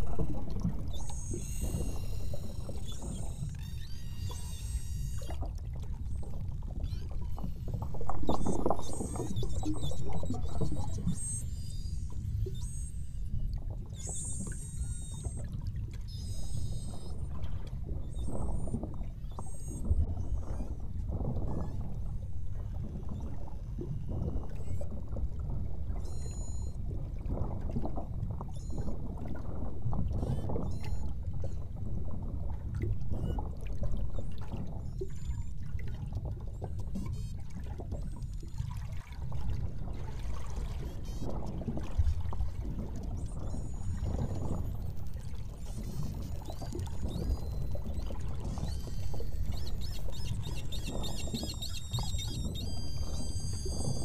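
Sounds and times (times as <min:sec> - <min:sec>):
faint high chirps and whistles: 0:00.0 - 0:05.5, 0:06.1 - 0:17.4, 0:18.0 - 0:20.8, 0:22.6 - 0:25.0, 0:25.9 - 0:26.8, 0:28.5 - 0:28.9, 0:30.1 - 0:31.6, 0:33.1 - 0:33.4, 0:36.6 - 0:37.4, 0:42.0 - 0:54.0
water sloshing against boat hull: 0:13.5 - 0:54.0.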